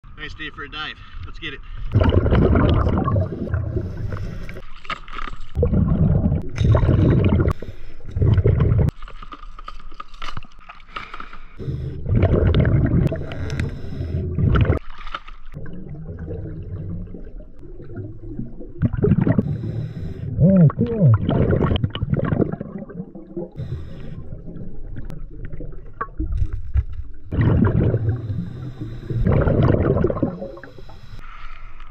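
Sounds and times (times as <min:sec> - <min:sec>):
underwater exhaled bubble bursts: 0:01.9 - 0:04.6, 0:05.6 - 0:08.9, 0:11.6 - 0:14.8, 0:15.6 - 0:26.6, 0:27.3 - 0:31.0.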